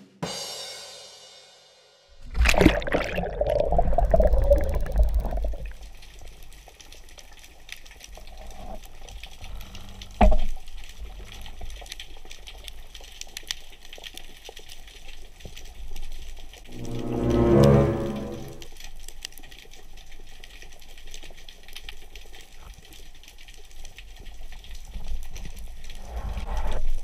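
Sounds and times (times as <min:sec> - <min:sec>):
underwater bubbles and churning water: 0:02.2 - 0:16.8, 0:18.5 - 0:27.0
underwater hiss: 0:25.9 - 0:27.0.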